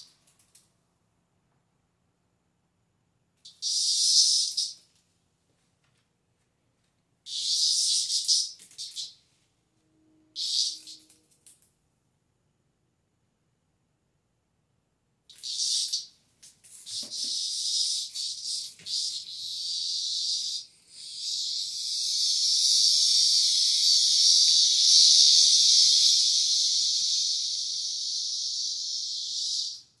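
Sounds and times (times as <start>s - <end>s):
cicada buzzing: 3.6s - 4.8s, 10.4s - 10.9s, 15.4s - 16.1s, 16.9s - 29.8s.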